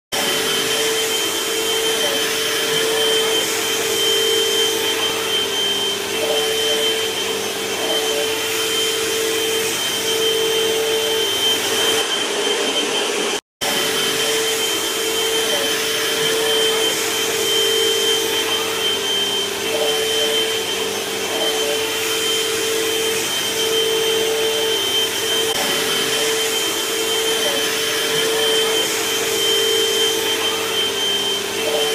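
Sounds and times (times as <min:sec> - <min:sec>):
vacuum cleaner running: 0:00.1 - 0:31.9.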